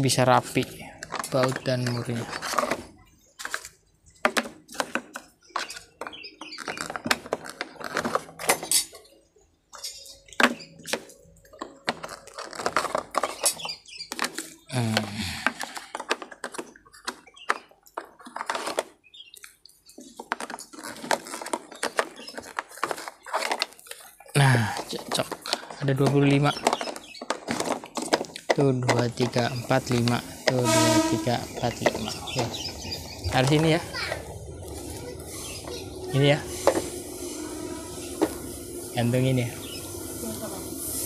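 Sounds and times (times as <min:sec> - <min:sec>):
plastic drawers clicking and knocking: 0:01.0 - 0:08.9, 0:10.3 - 0:19.0, 0:20.0 - 0:30.6.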